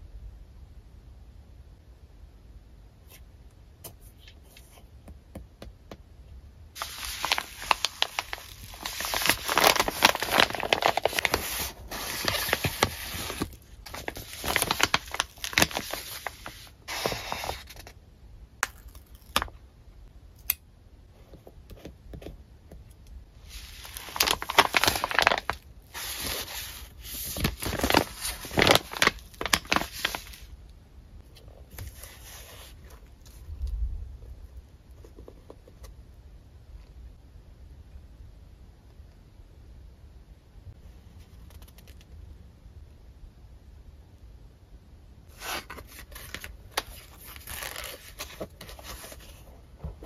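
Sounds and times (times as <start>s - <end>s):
paper rustling and crinkling: 6.8s - 18.0s, 23.4s - 30.5s, 45.3s - 50.0s.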